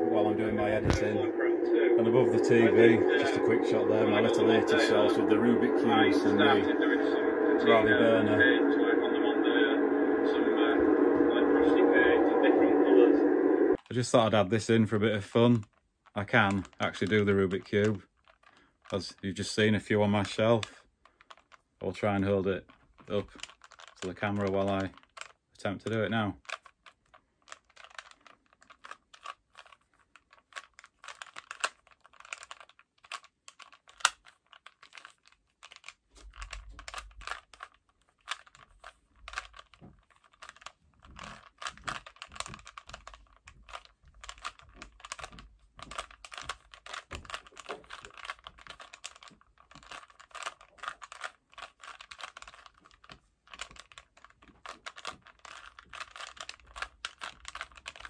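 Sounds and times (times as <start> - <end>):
puzzle cube plastic clicking: 14.7 - 58.0.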